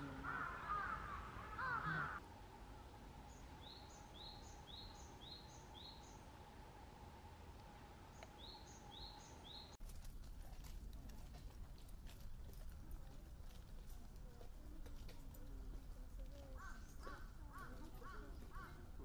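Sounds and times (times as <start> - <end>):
faint steady hum: 0.0 - 9.8
crow cawing: 0.2 - 2.2.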